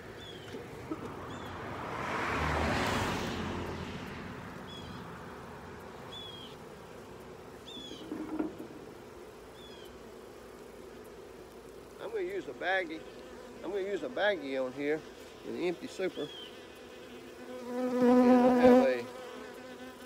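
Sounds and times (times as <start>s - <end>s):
car passing: 0.0s - 8.9s
bird chirping: 0.2s - 0.6s, 4.7s - 5.2s, 6.0s - 6.6s, 7.6s - 8.2s, 9.5s - 10.0s, 16.0s - 16.6s.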